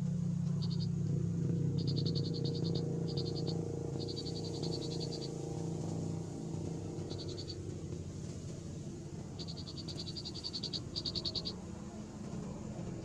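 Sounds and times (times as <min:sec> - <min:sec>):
frogs croaking: 0:00.4 - 0:08.0, 0:09.1 - 0:11.7
high chirping trills: 0:00.5 - 0:01.0, 0:01.7 - 0:05.4, 0:06.9 - 0:07.7, 0:09.3 - 0:11.6.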